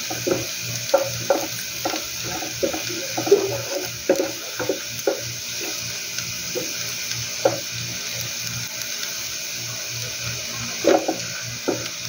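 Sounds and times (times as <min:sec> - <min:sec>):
garlic sizzling in oil: 0:00.0 - 0:12.0
wooden spoon scraping pan: 0:00.1 - 0:05.8.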